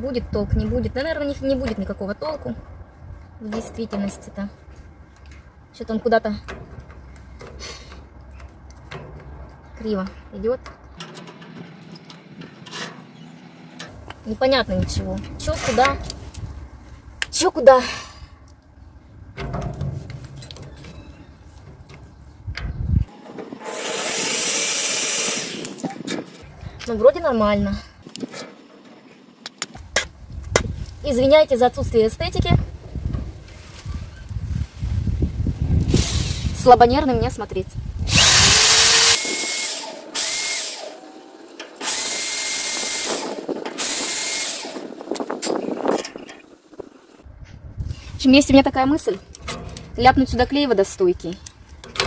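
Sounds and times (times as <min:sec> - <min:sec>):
scraping on metal gate rack: 0:10.7 - 0:14.1, 0:49.4 - 0:50.3
cordless drill driving screw: 0:23.6 - 0:25.8, 0:38.1 - 0:41.0, 0:41.8 - 0:44.9.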